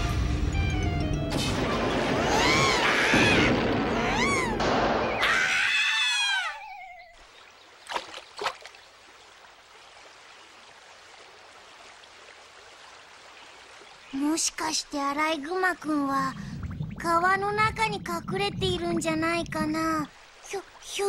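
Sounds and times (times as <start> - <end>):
cartoon whoosh with wail: 1.6 - 7.0.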